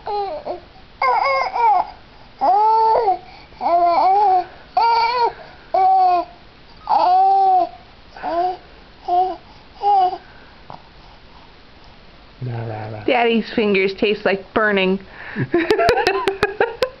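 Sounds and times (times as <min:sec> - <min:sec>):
baby babbling: 0:00.0 - 0:10.2.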